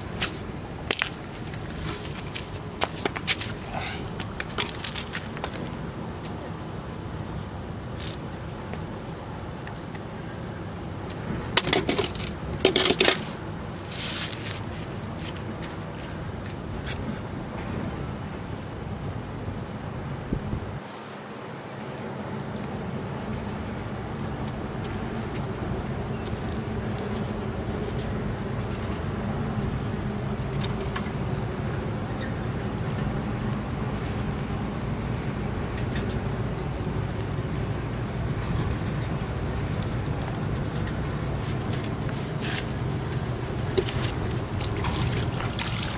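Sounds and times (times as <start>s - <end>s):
night insects trilling: 0.0s - 45.9s.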